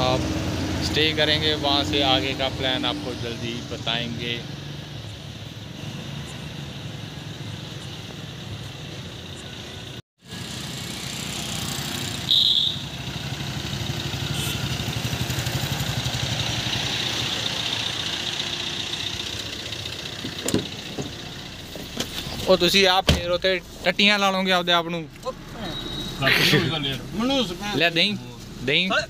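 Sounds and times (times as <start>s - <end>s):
car engine running: 6.7s - 29.0s
sharp high squeal: 25.6s - 26.6s.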